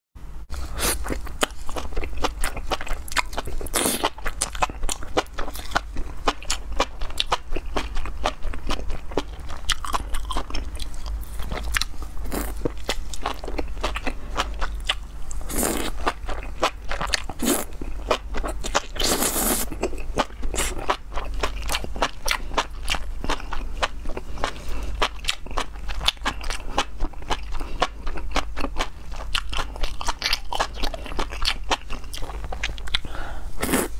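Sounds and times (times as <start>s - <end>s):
chewing and crunching mushrooms: 0.6s - 33.9s
slurping: 19.0s - 19.7s.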